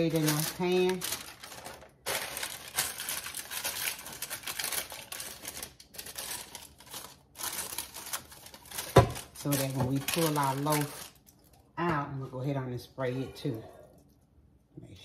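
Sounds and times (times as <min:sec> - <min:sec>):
parchment paper crinkling: 0:00.0 - 0:11.6.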